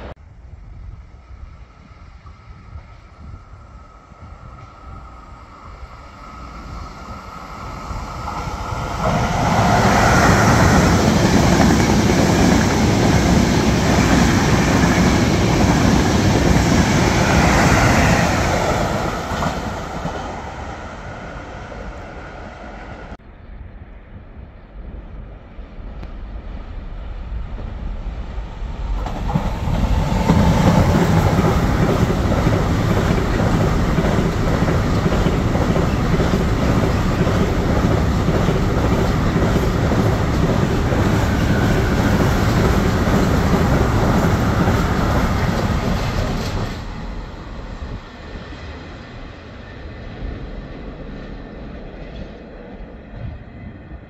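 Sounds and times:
electric passenger train passing: 0:00.0 - 0:54.0
freight train wagons rolling on rails: 0:28.9 - 0:48.2.

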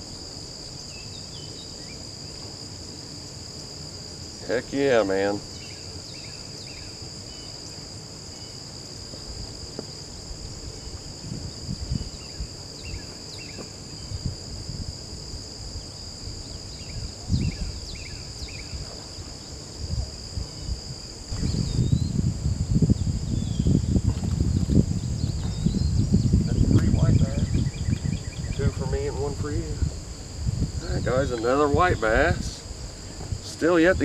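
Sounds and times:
insects chorus: 0:00.0 - 0:34.0
low rumbling noise: 0:19.2 - 0:33.5.

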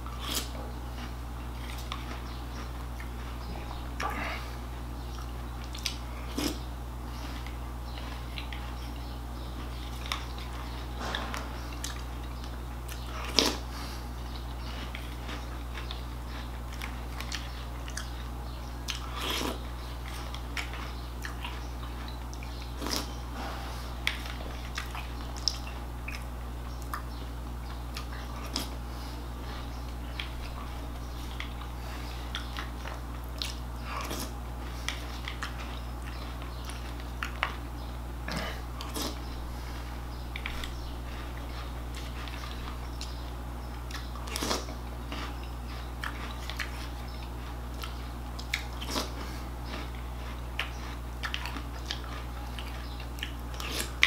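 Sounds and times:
person crunching and chewing cereal: 0:00.0 - 0:54.0.

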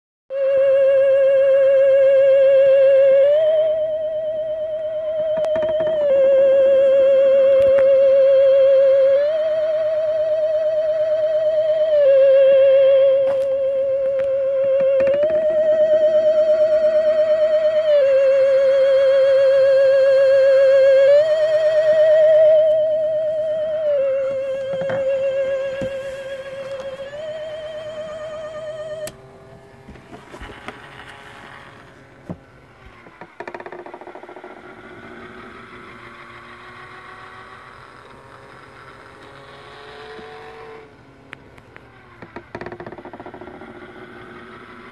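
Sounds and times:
electronic theremin-style tune: 0:00.3 - 0:31.8.

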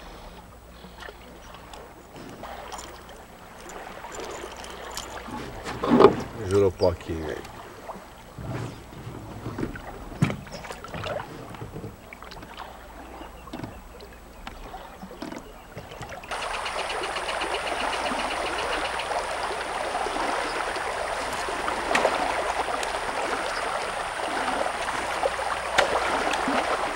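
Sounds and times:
small splashes: 0:00.8 - 0:26.9
stream rushing over a shallow bed: 0:16.3 - 0:26.9.

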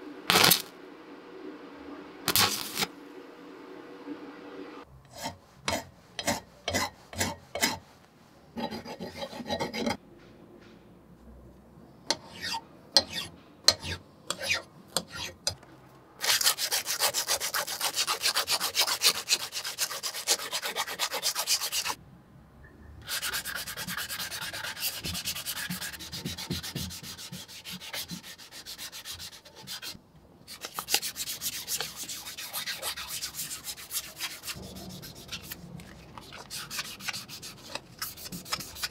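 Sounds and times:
hand file scraping metal: 0:05.1 - 0:07.9, 0:08.6 - 0:10.0, 0:12.1 - 0:15.6, 0:16.2 - 0:22.0, 0:23.0 - 0:38.9
sanding pad rubbing metal: 0:16.2 - 0:22.0, 0:23.0 - 0:38.9.

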